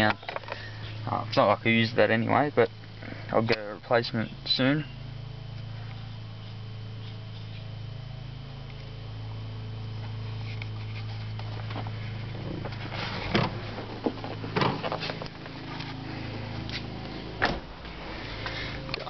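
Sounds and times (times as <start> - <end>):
steady low hum: 0.0 - 19.0
handling knocks and rustles: 10.4 - 16.0.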